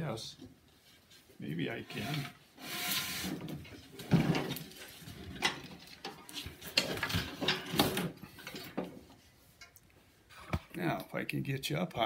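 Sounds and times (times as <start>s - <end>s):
metal scraping: 0.8s - 9.0s.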